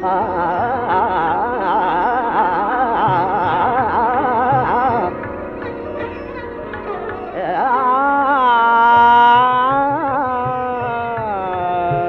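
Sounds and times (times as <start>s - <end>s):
steady drone: 0.0s - 8.7s
fast wavering melodic run: 0.0s - 11.4s
low tabla strokes: 0.0s - 12.0s.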